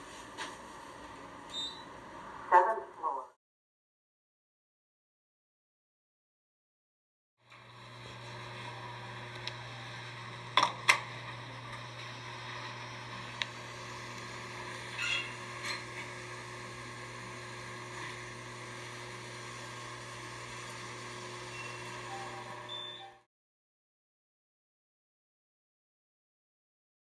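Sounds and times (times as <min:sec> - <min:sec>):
elevator hum: 0:07.5 - 0:23.2.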